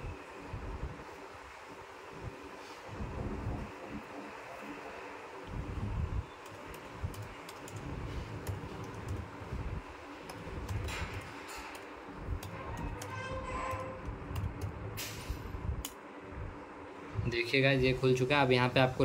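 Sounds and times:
steady low rumble: 0:02.1 - 0:04.2, 0:05.4 - 0:17.6
laptop keyboard typing: 0:06.2 - 0:15.0.

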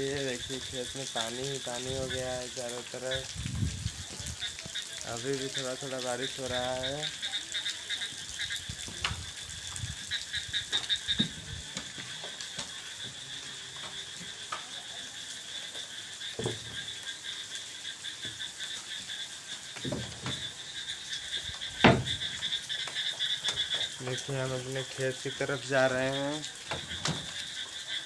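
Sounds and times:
frogs trilling: 0:00.0 - 0:28.0
dull knocks: 0:21.8 - 0:22.2.

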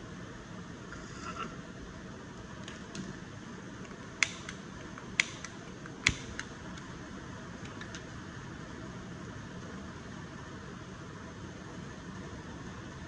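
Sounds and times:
lighter trigger clicks: 0:04.2 - 0:06.5.

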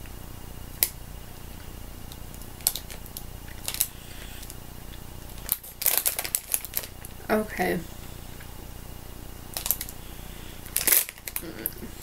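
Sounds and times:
plastic bag crinkling: 0:02.3 - 0:04.5, 0:05.2 - 0:07.2, 0:09.5 - 0:10.0, 0:10.6 - 0:12.0.

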